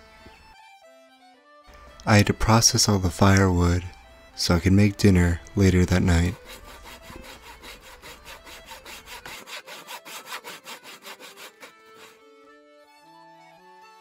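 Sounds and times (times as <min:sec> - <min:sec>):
hand saw cutting log: 0:05.6 - 0:12.3.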